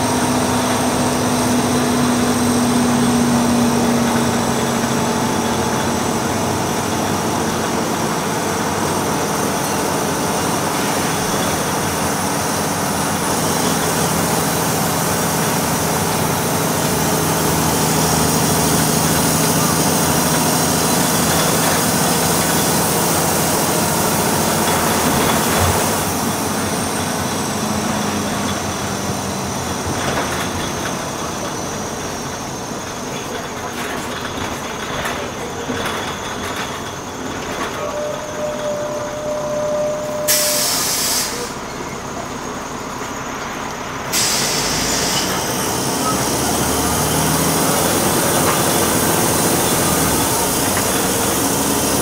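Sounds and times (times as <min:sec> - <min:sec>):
bus diesel engine running: 0:00.0 - 0:52.0.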